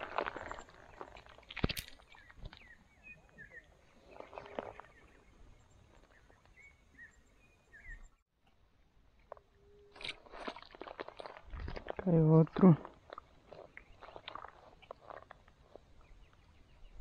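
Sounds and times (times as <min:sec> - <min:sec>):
rustles and clicks of handling fish: 0:00.0 - 0:03.4.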